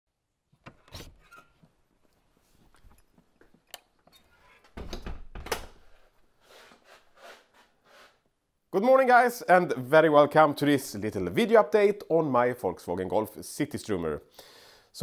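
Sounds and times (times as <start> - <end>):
door opening and shutting: 0.6 - 1.6, 4.1 - 6.0
heavy door thud: 4.8 - 5.8.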